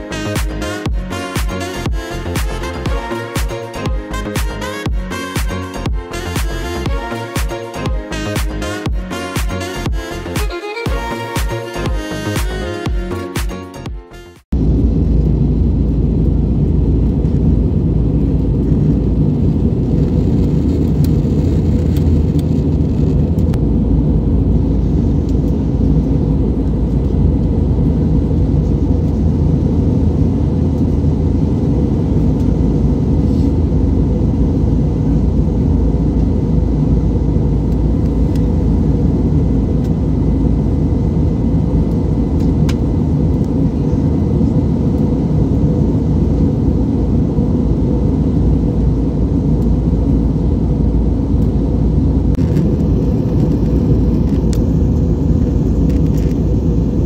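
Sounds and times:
aircraft cabin engine rumble: 0:14.5 - 0:57.0.

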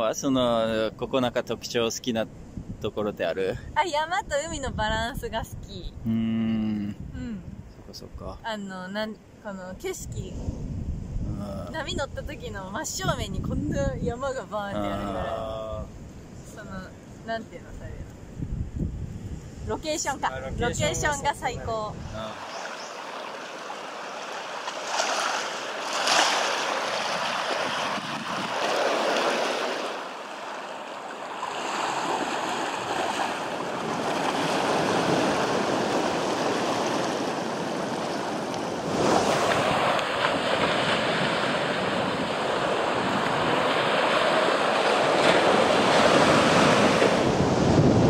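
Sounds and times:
wind on microphone: 0:02.4 - 0:02.9, 0:03.6 - 0:07.9, 0:09.9 - 0:17.0, 0:17.6 - 0:22.7, 0:26.9 - 0:29.4, 0:32.0 - 0:48.0
ocean surf washing in: 0:19.5 - 0:48.0.

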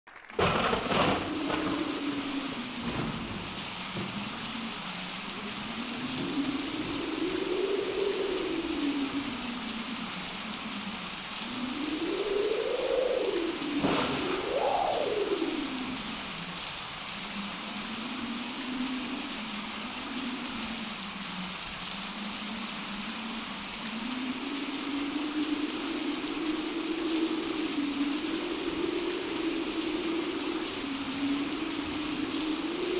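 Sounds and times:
heavy rain: 0:00.1 - 0:32.9
low howling wind: 0:00.1 - 0:32.9
thunder crash: 0:00.3 - 0:04.5, 0:13.3 - 0:15.9.

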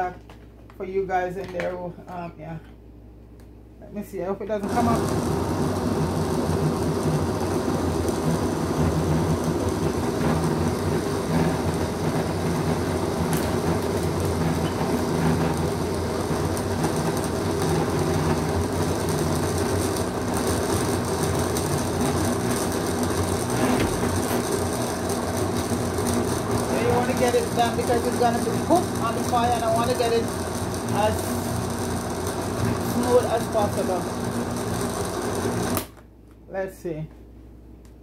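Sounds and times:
blender motor running: 0:04.6 - 0:36.0.

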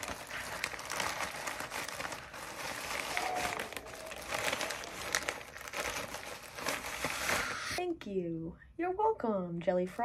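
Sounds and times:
plastic mailer crinkling: 0:00.0 - 0:07.8.

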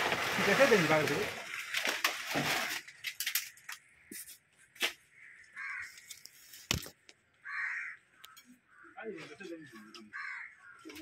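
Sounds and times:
bird calls: 0:03.5 - 0:06.5, 0:07.4 - 0:11.0.

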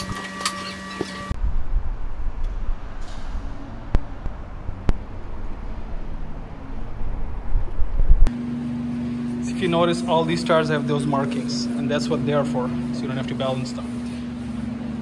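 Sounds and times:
road traffic: 0:00.0 - 0:15.0
wind rumble: 0:01.3 - 0:08.3.

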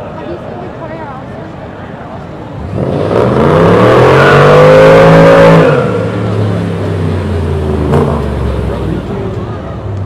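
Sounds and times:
car engine accelerating: 0:02.6 - 0:10.0.

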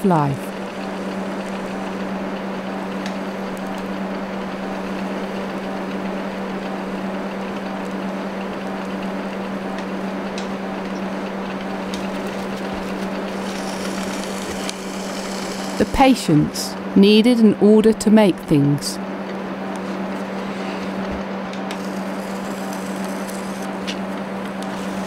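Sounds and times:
potter's wheel motor hum: 0:00.0 - 0:25.0.

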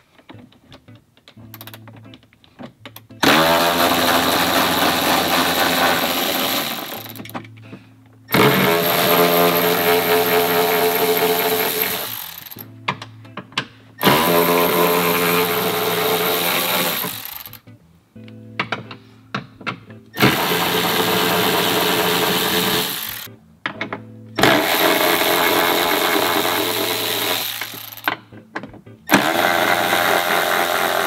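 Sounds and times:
background music: 0:00.3 - 0:31.0
power tool motor whining: 0:03.2 - 0:07.3, 0:08.3 - 0:12.7, 0:14.0 - 0:17.6, 0:20.2 - 0:23.3, 0:24.4 - 0:28.1, 0:29.1 - 0:31.0.

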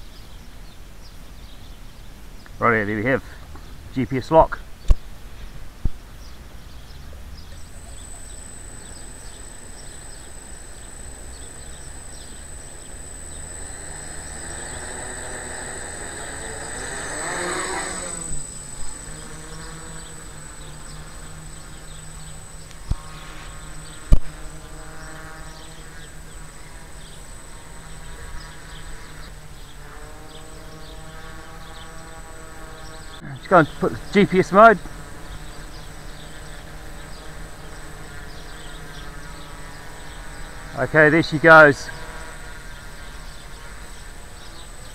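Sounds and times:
quadcopter propellers buzzing: 0:02.8 - 0:44.9
sharp clicks: 0:07.4 - 0:24.4.

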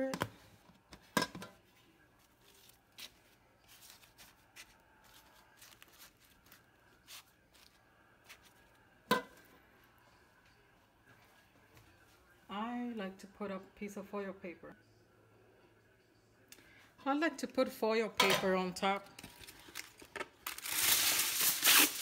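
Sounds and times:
corn husks rustling: 0:02.2 - 0:08.6.

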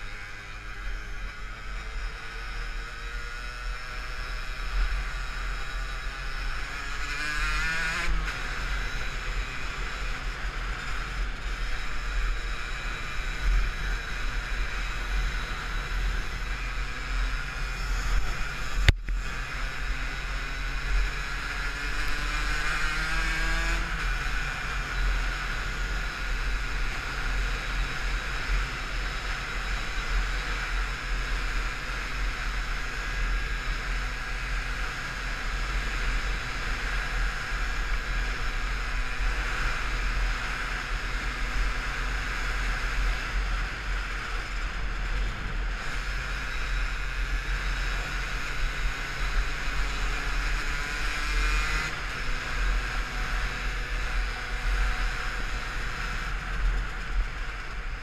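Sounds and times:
two-stroke engine revving: 0:01.0 - 0:58.0.

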